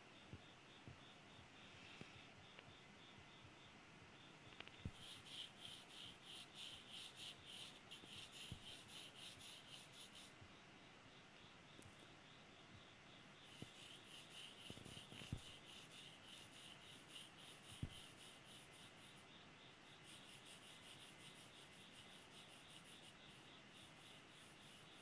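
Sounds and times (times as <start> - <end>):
pencil scratching on paper: 4.9 - 10.4, 13.4 - 19.2, 20.0 - 25.0.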